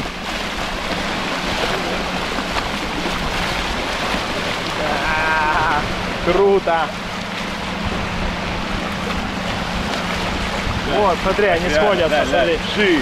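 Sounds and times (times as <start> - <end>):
waves washing onto sand: 0.0 - 13.0
wind on microphone: 7.4 - 12.8.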